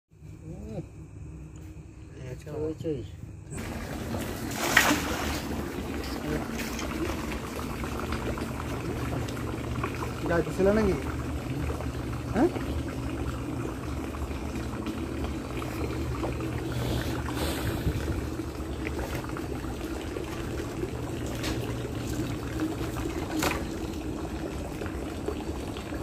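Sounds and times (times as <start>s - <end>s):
water running and trickling: 3.5s - 26.0s
short sharp splashes: 3.6s - 7.1s.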